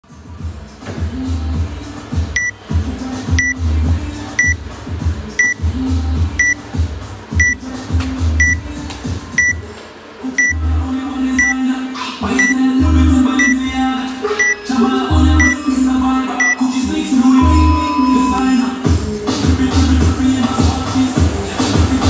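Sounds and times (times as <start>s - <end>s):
background music with steady beat: 0.0s - 22.0s
short high electronic beeps: 5.4s - 5.6s, 8.4s - 8.6s, 9.4s - 9.6s, 16.4s - 18.6s.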